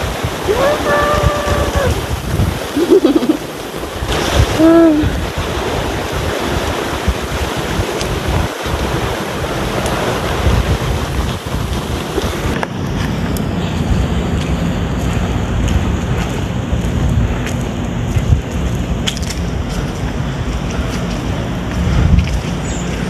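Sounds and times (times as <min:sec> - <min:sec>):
sea surf: 0:00.0 - 0:16.3
wind gusting across microphone: 0:00.0 - 0:23.0.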